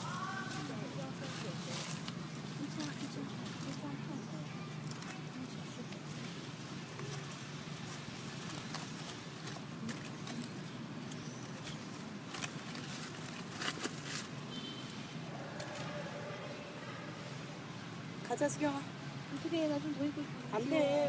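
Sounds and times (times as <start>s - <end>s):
light clicks and rustles: 4.7s - 15.0s.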